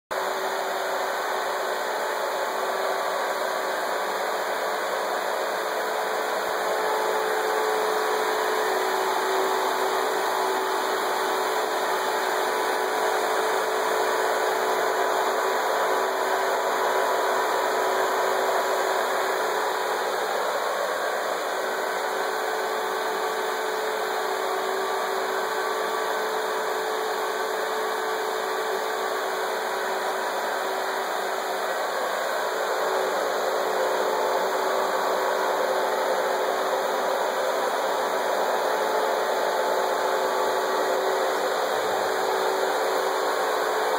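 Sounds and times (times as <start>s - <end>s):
electric fans whirring: 0.2s - 43.9s.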